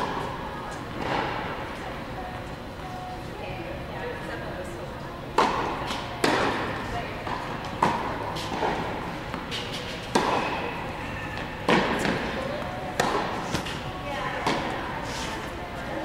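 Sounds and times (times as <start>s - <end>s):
tennis ball bouncing on court: 5.4s - 10.7s, 11.4s - 13.8s, 14.4s - 14.8s
tennis ball struck by racket: 7.3s - 10.6s, 11.6s - 13.8s.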